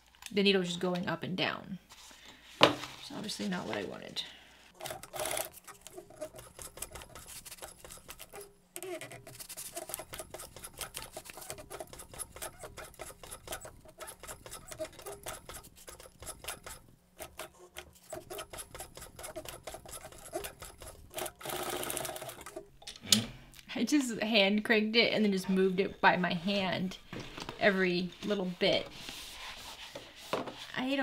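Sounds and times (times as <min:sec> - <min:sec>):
sewing machine clicking: 0:04.8 - 0:22.7
leather rubbing and scraping: 0:27.6 - 0:30.8.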